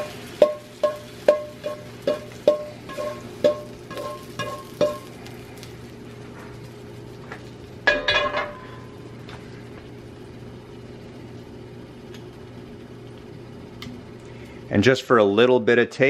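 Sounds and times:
frying pan clanking: 0.0s - 5.2s, 7.8s - 9.0s
steady low hum: 0.0s - 16.0s.

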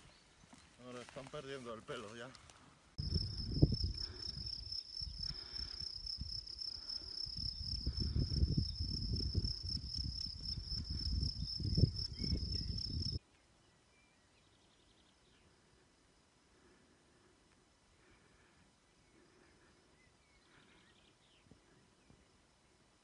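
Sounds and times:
high insect trill: 3.0s - 13.2s
wind buffeting microphone: 3.0s - 13.2s.

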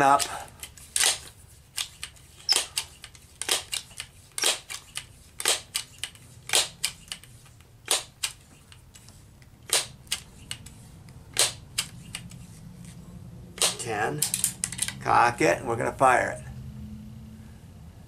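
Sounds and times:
air pistol pump clacking: 0.0s - 12.5s, 13.6s - 15.0s.

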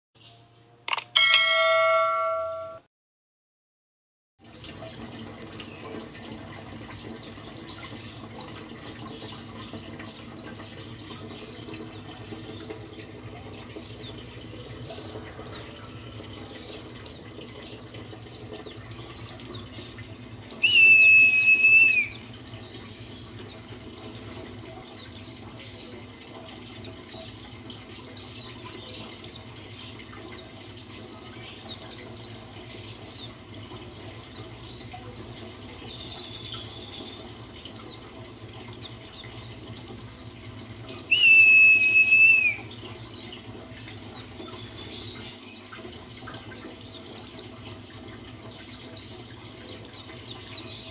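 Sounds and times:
low steady hum: 0.3s - 2.9s
bird held note: 0.9s - 2.9s
bird twittering: 20.5s - 22.2s.

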